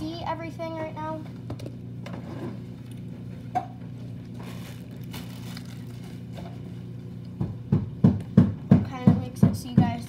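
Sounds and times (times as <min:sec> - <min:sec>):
steady low hum: 0:00.0 - 0:10.0
packaging rustling: 0:04.2 - 0:06.7.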